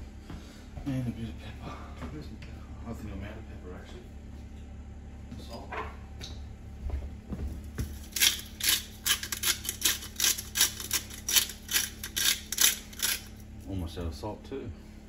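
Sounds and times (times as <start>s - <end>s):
pepper grinder crunching: 7.9s - 13.7s.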